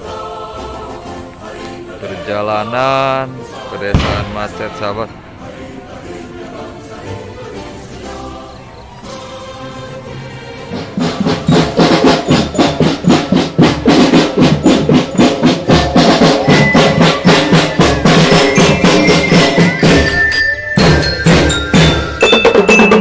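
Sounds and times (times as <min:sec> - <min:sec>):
snare and bass drums beating: 0:03.9 - 0:04.6, 0:10.9 - 0:23.0
bell lyras ringing: 0:15.2 - 0:23.0.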